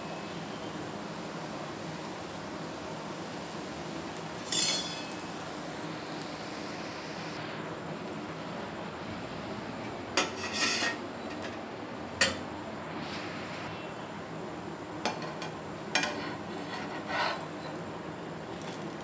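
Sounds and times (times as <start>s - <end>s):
metal utensils clinking on pan: 4.4s - 5.2s, 10.2s - 11.6s, 15.0s - 17.8s.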